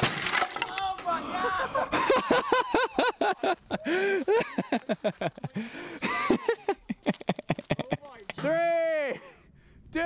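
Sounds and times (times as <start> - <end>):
people exclaiming excitedly: 0.7 - 2.8.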